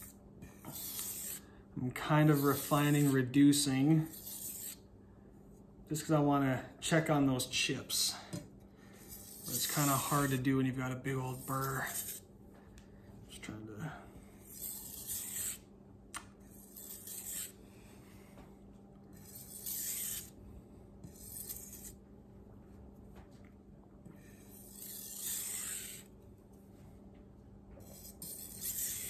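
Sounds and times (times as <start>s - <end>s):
knife scraping on whetstone: 0.0s - 1.5s, 2.2s - 3.2s, 4.0s - 4.8s, 9.0s - 10.4s, 11.4s - 12.2s, 14.4s - 15.6s, 16.5s - 17.6s, 19.1s - 20.4s, 21.0s - 22.0s, 24.5s - 26.1s, 27.8s - 29.0s.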